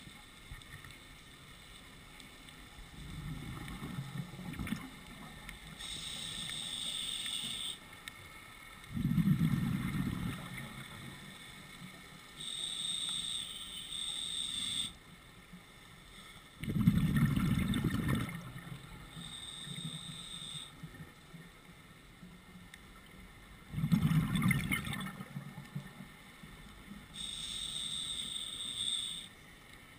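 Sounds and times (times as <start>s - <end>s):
regulator hissing inhalations: 5.8s - 7.8s, 19.2s - 20.8s, 27.2s - 29.3s
exhaled bubbles bursting: 8.9s - 10.7s, 16.6s - 18.6s, 23.7s - 25.4s.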